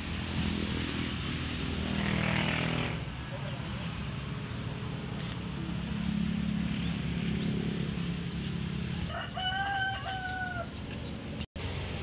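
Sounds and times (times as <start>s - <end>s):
rooster crowing: 9.1s - 10.8s.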